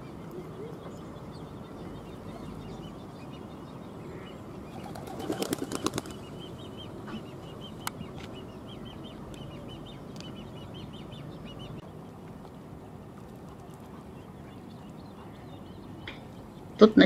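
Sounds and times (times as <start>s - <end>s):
chick begging calls: 4.0s - 11.8s.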